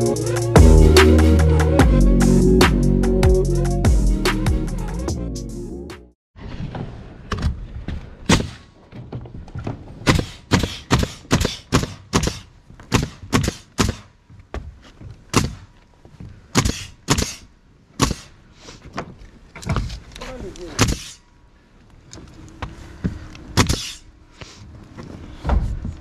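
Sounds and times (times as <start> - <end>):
nail gun firing into plywood: 10.0 - 14.1, 16.5 - 18.3.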